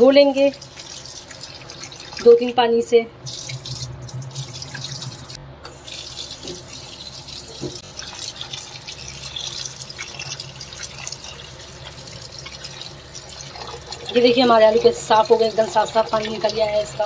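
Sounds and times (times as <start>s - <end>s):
tap water running: 0.0s - 17.0s.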